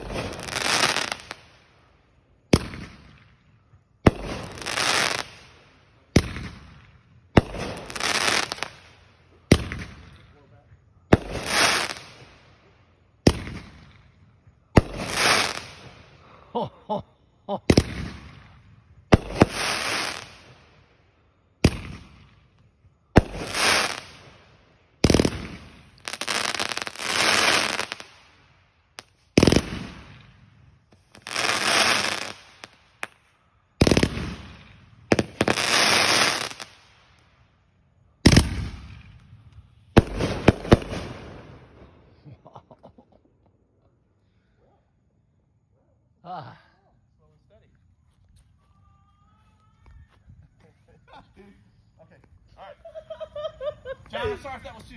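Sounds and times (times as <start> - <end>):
firework shots banging: 7.4 - 8.8.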